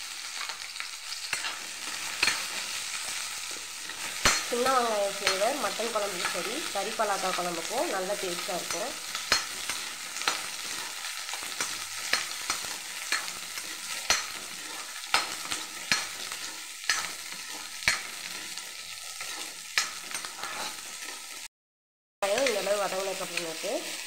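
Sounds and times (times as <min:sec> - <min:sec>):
shallots sizzling in hot oil: 0:00.0 - 0:21.5, 0:22.2 - 0:24.0
spatula scraping metal pan: 0:00.3 - 0:06.6, 0:08.6 - 0:21.5.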